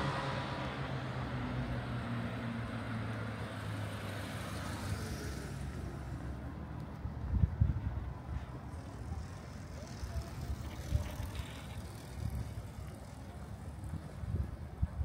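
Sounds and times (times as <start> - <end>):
vehicle passing: 0.0 - 14.1.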